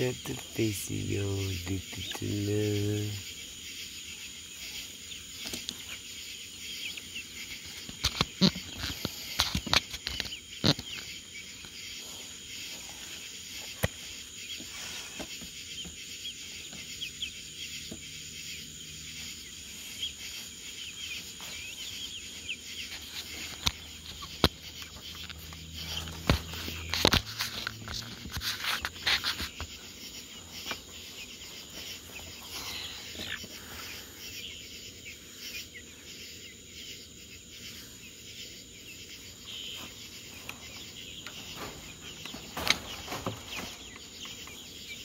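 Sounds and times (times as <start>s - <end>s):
chicks peeping: 0.0s - 45.0s.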